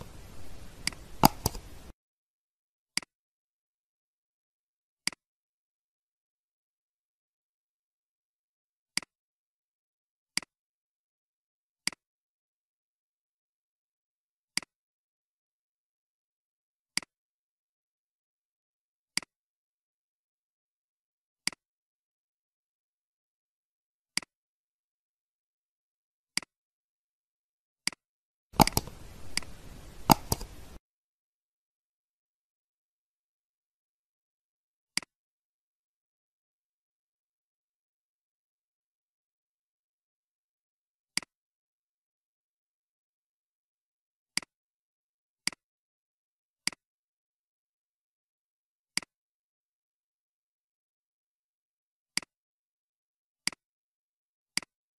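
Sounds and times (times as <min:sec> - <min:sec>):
computer mouse clicks: 0:00.0 - 0:01.9, 0:28.6 - 0:30.8.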